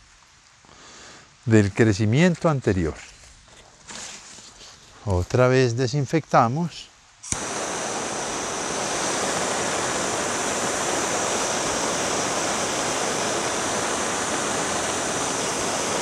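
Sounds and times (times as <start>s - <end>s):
gas torch hissing: 7.2s - 16.0s.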